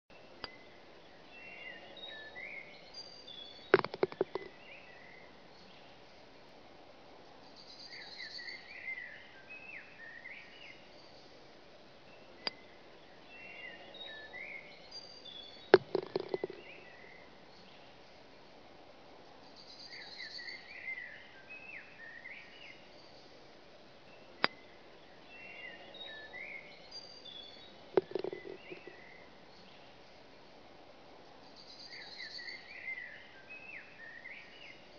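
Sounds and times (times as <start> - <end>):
birds chirping: 0.1 - 6.0, 12.1 - 18.0, 24.1 - 30.0
golf ball rattling into cup: 3.7 - 4.6, 15.7 - 16.8, 28.0 - 29.0
putter striking golf ball: 3.7 - 4.6, 15.7 - 16.8, 28.0 - 29.0.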